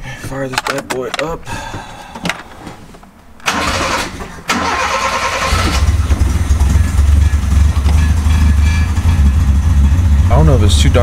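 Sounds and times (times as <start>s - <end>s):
car starter cranking: 3.4s - 8.3s
car engine idling: 3.5s - 11.0s.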